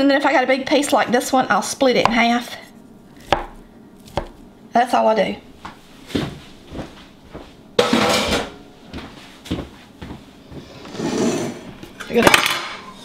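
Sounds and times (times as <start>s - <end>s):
kitchenware knocks and clatters: 7.8s - 8.6s, 12.0s - 13.0s.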